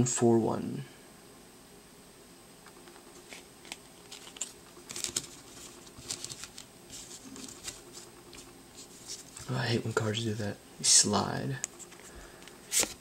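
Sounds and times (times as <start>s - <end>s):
cards clicking and rustling: 2.7s - 9.5s, 11.6s - 13.0s.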